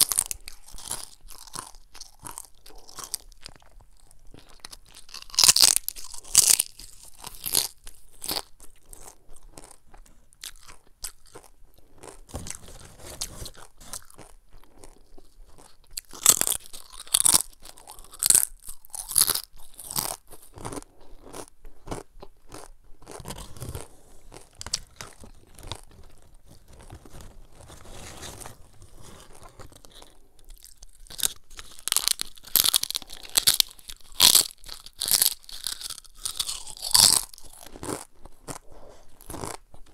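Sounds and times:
chips crunching: 0.0 - 3.7, 4.3 - 9.8, 10.4 - 39.9
soft chewing: 0.0 - 39.9.

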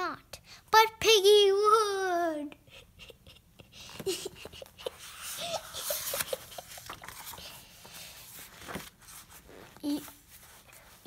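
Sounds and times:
paper page rustling: 5.0 - 11.0.

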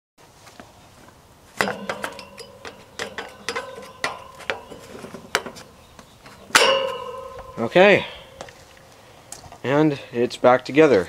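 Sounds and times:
metallic ring of fan grille: 1.6 - 8.9.

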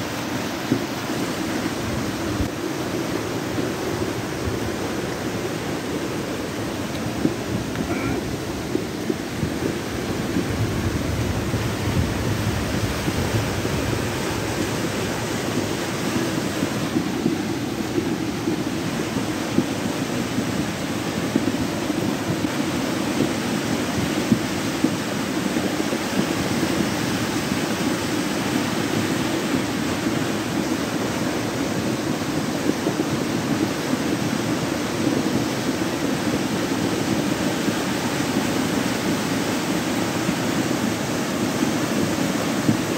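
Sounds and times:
floodwater rushing: 0.0 - 42.9.

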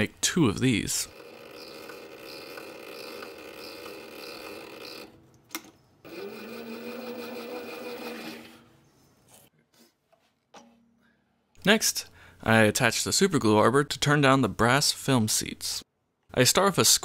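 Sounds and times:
lathe motor whine: 1.1 - 5.1, 6.1 - 8.6.

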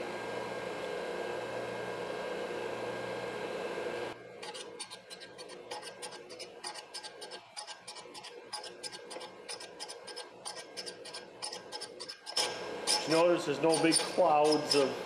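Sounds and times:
scratchy rasping strokes: 4.4 - 14.9.

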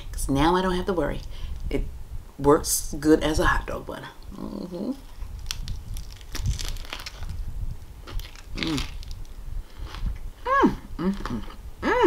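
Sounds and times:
lettuce crunching while chewed: 5.1 - 10.2.

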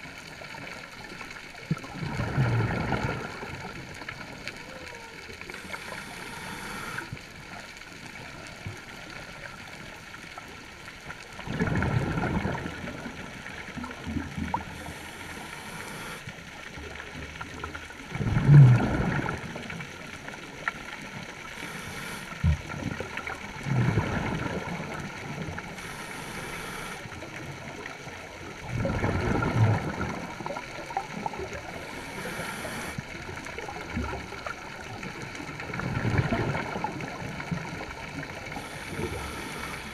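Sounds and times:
gurgling exhaled bubbles: 0.0 - 9.8, 10.4 - 39.9
regulator inhalation hiss: 5.6 - 7.2, 14.8 - 16.3, 21.6 - 22.4, 25.8 - 27.1, 31.8 - 33.0, 38.6 - 39.9.

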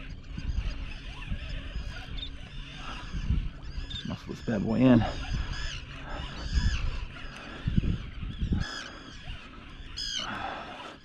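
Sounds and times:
birds honking: 0.0 - 11.0.

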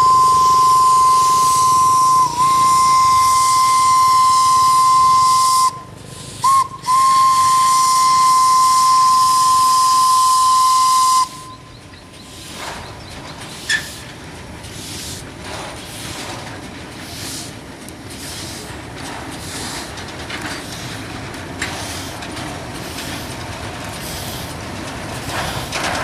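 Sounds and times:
steam locomotive whistle: 0.0 - 11.7
steam hissing: 0.0 - 25.9.

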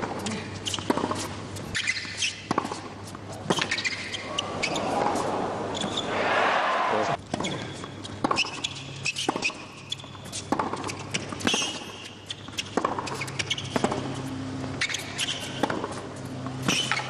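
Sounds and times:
rackets striking tennis ball: 0.0 - 6.2, 7.3 - 17.0
sneaker squeaks on court: 0.6 - 2.8, 3.5 - 6.1, 7.4 - 13.8, 14.8 - 15.8, 16.6 - 17.0.

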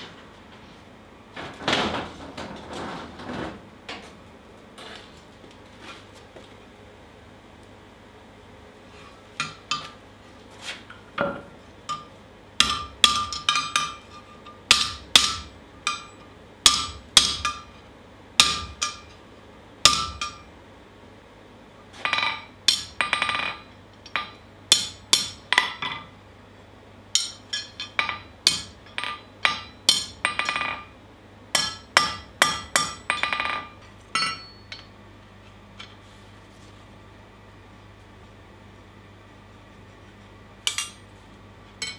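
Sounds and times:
hammer striking steel on anvil: 11.2 - 17.8, 18.4 - 19.2, 19.9 - 20.5, 22.1 - 26.1, 27.2 - 30.9, 31.6 - 35.0, 40.7 - 41.0.

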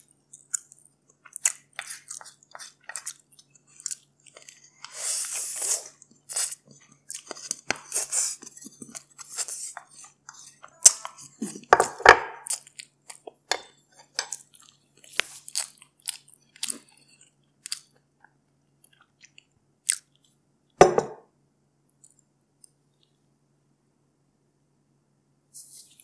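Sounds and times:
close chewing and mouth sounds: 0.0 - 20.5.

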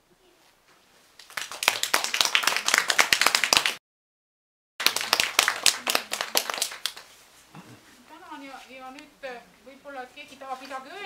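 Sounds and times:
audience applauding: 1.2 - 3.8, 4.8 - 7.1.

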